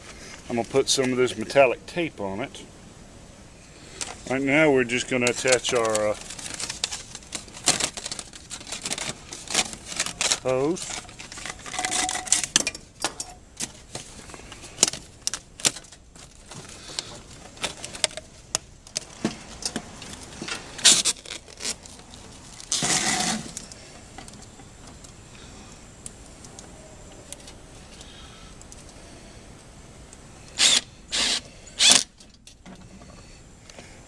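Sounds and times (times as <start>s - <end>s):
metal duct hose clicks and rattles: 5.2s - 25.2s
metal scrape: 22.7s - 23.6s.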